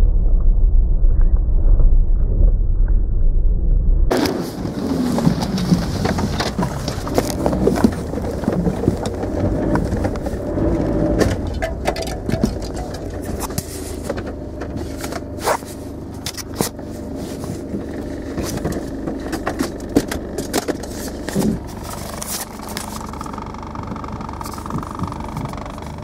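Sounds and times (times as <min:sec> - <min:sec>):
car engine and road rumble: 0:00.0 - 0:26.0
steady higher hum: 0:00.0 - 0:26.0
camera rubbing against clothing: 0:13.0 - 0:14.2, 0:14.8 - 0:19.0.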